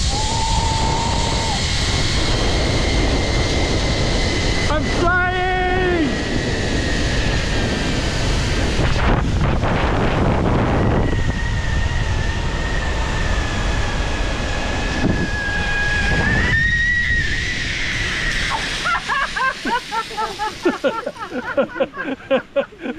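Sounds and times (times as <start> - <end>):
wind rushing over microphone: 0.0 - 22.8
pulleys whining on cable: 0.0 - 22.9.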